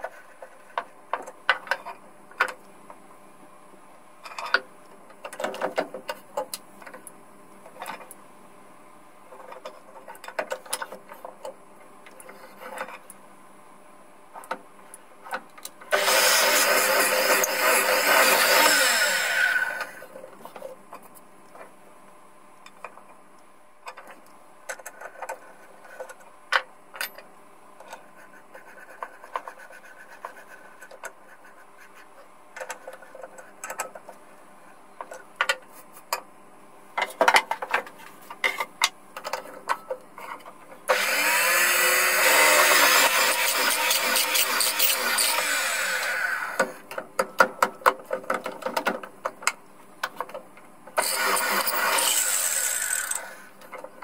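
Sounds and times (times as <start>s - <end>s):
drill press running: 40.9s - 46.7s, 51.0s - 53.4s.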